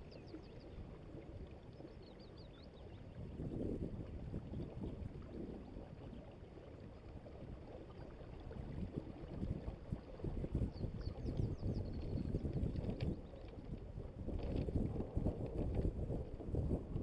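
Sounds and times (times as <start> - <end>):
wind rumble on microphone: 0.0 - 17.0
water washing along a hull: 4.0 - 17.0.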